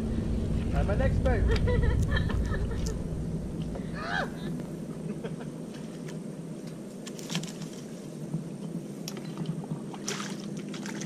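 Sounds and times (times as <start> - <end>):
kayak paddle splashes: 9.8 - 11.0.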